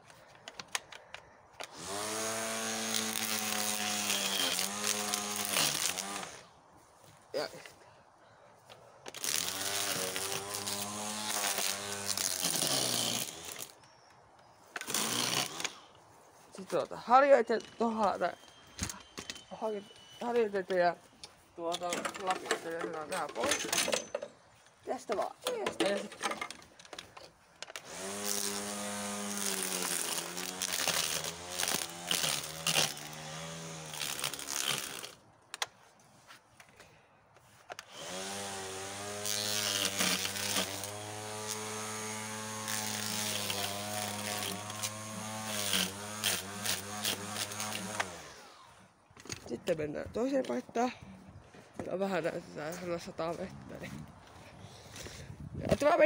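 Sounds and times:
string trimmer motor buzzing: 0.6s - 6.5s, 9.1s - 13.8s, 14.7s - 15.9s, 27.7s - 35.2s, 37.8s - 49.0s.

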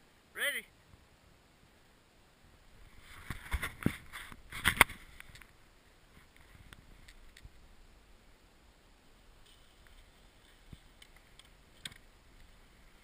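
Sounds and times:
faint clicks: 9.4s - 12.6s.

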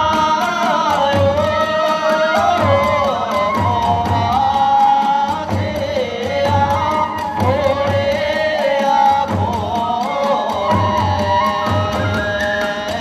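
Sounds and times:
winding flute melody: 0.0s - 5.5s, 6.1s - 13.0s
drums beating: 0.0s - 13.0s
small hand cymbals: 0.0s - 13.0s.

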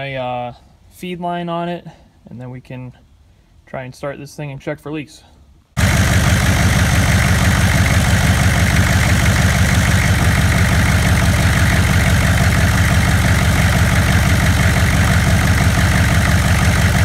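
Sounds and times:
diesel engine idling: 5.8s - 17.0s.

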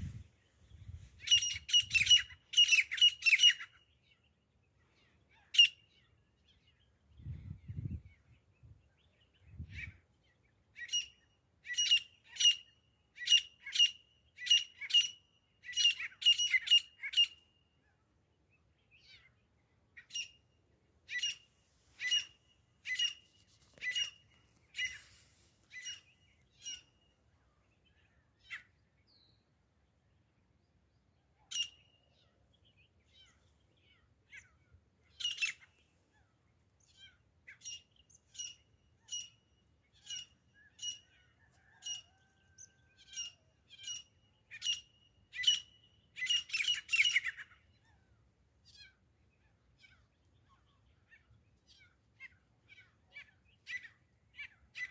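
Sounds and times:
bird calling: 21.1s - 27.1s.

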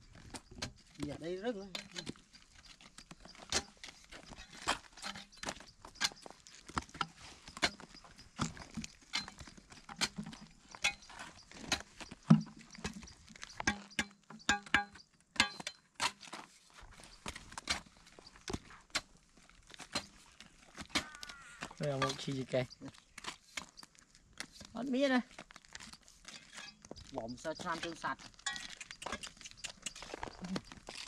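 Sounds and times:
spade striking hard ground: 0.5s - 16.5s, 19.8s - 22.4s, 27.6s - 30.2s.

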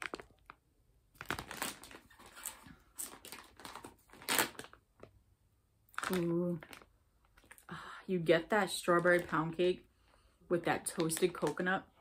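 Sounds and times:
plastic bag crinkling: 0.0s - 5.2s, 5.9s - 7.6s, 8.6s - 9.8s, 10.8s - 11.7s.

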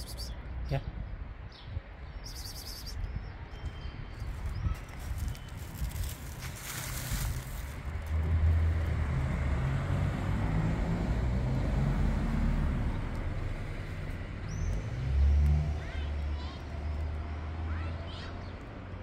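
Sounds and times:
bird chirping: 0.0s - 0.8s, 1.5s - 5.5s
motor vehicle rumble: 3.4s - 19.0s.

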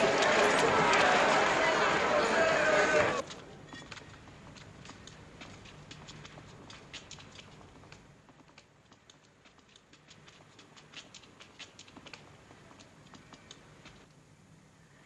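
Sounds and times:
footsteps on stone floor: 2.9s - 14.1s.

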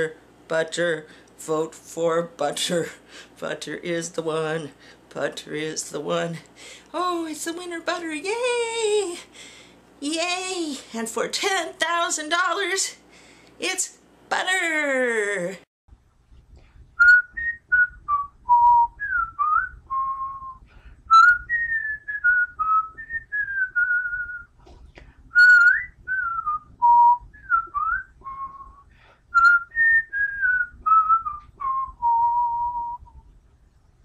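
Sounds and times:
person whistling a tune: 17.0s - 24.5s, 25.3s - 33.2s.

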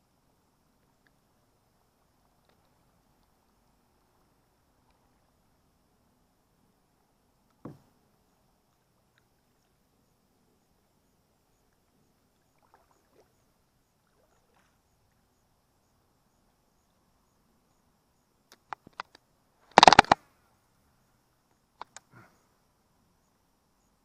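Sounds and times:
sharp clicks: 18.5s - 20.2s, 21.8s - 22.1s.

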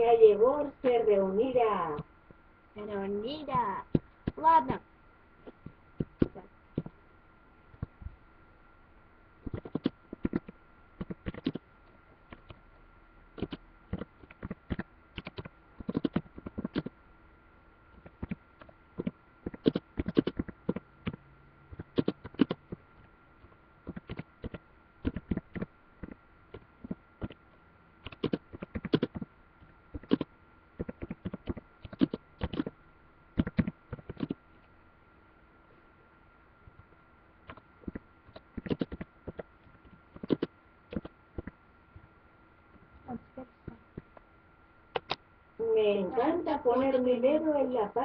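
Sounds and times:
faint steady whine: 0.0s - 48.0s
keyboard key clicks: 9.5s - 11.6s, 13.4s - 16.9s, 28.0s - 29.3s, 30.0s - 32.7s, 45.0s - 45.2s.

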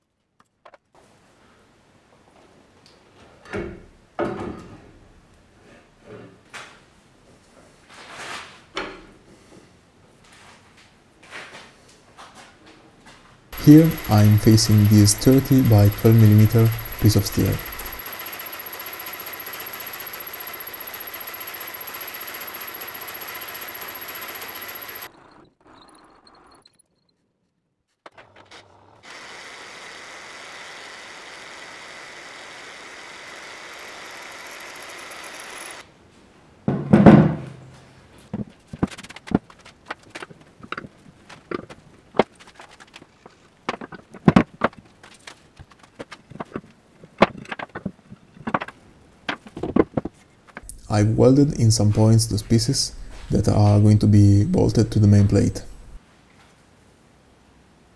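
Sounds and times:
milling machine cutting steel: 13.6s - 25.4s, 29.1s - 35.8s
loud thunk: 36.7s - 37.6s.

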